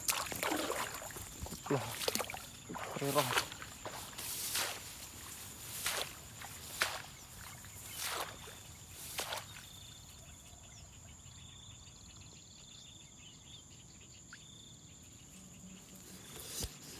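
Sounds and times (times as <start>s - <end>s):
footsteps swishing through grass: 0.0s - 9.7s
insects buzzing high-pitched: 0.0s - 10.2s
insects pulsed chirping: 0.0s - 16.9s.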